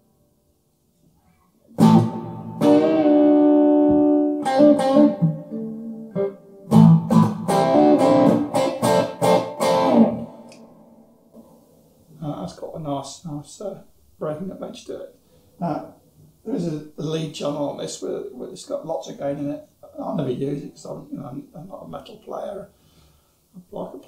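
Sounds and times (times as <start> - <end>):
overdriven electric guitar chords: 1.8 - 11.5.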